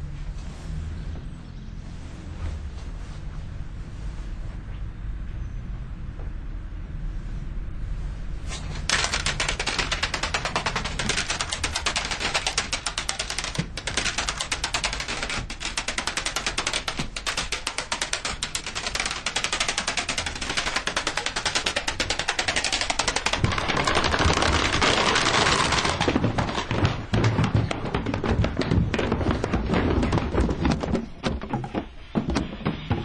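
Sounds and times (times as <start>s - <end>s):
plastic cases toppling and clacking: 8.9s - 33.0s.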